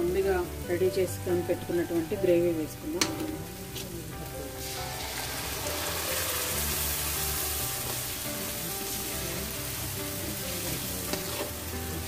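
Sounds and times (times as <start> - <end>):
paste sizzling in hot oil: 0.1 - 12.0.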